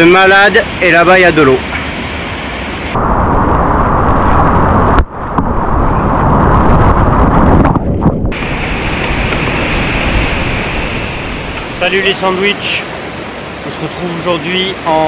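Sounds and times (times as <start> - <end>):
rushing whitewater river: 8.4 - 15.0.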